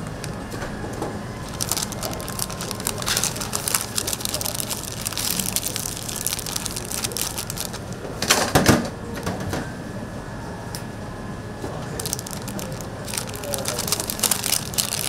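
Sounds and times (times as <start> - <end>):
wrapping paper crinkling: 0.0 - 0.5, 1.4 - 8.0, 12.0 - 15.0.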